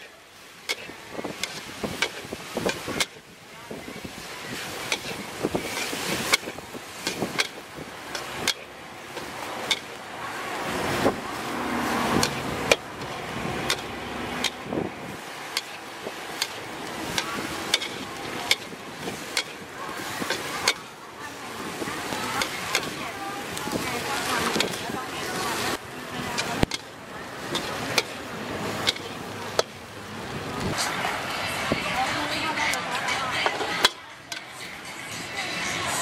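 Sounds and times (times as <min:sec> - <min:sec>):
metal ladle clanking in wok: 0:04.8 - 0:10.0, 0:12.1 - 0:14.6, 0:15.5 - 0:20.9, 0:23.8 - 0:29.8.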